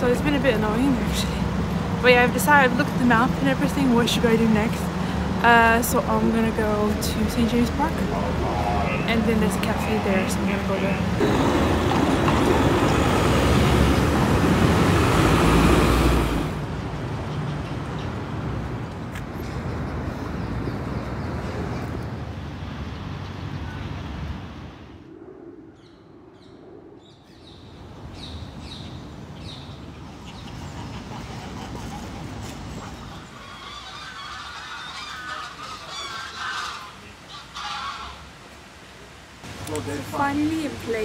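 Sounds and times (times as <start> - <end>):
road traffic rumble: 0.0 - 25.1, 27.4 - 41.0
birds calling: 7.2 - 16.4, 25.7 - 38.4
geese honking: 8.0 - 14.0, 32.8 - 38.3.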